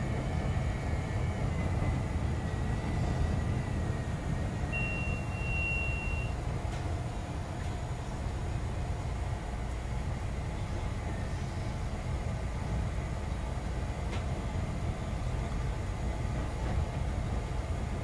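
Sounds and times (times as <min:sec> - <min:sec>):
elevated train rumbling: 0:00.0 - 0:18.0.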